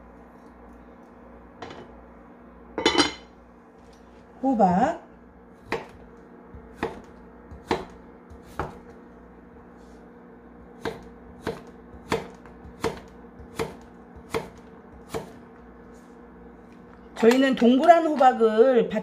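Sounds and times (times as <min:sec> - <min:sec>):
knife chopping on wooden board: 0:05.6 - 0:09.0, 0:10.8 - 0:15.5.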